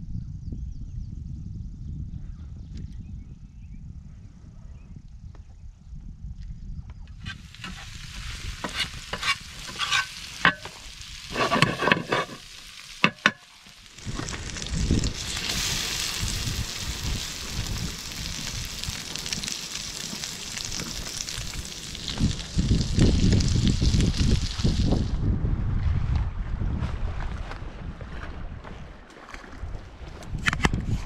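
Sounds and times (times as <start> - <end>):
fish sizzling in hot oil: 7.2 - 25.1.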